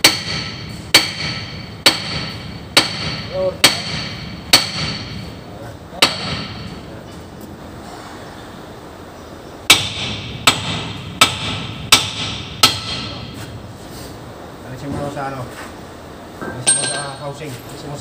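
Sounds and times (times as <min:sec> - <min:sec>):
hammer ringing on steel: 0:00.0 - 0:05.4, 0:06.0 - 0:06.8, 0:09.7 - 0:13.4.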